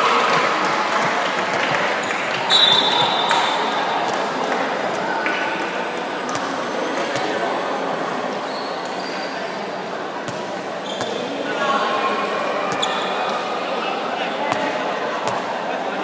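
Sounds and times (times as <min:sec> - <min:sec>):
crowd cheering: 0:00.0 - 0:07.5
sneakers squeaking: 0:01.5 - 0:13.6, 0:14.4 - 0:16.0
ball bouncing on court: 0:02.4 - 0:04.3, 0:06.3 - 0:07.4, 0:10.3 - 0:11.3, 0:12.7 - 0:13.1, 0:14.5 - 0:15.5.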